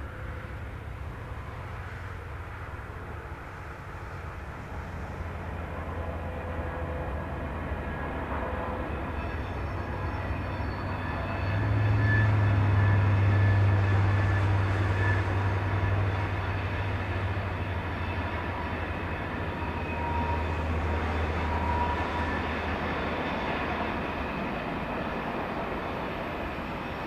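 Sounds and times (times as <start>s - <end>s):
diesel locomotive engines droning: 0.0s - 27.0s.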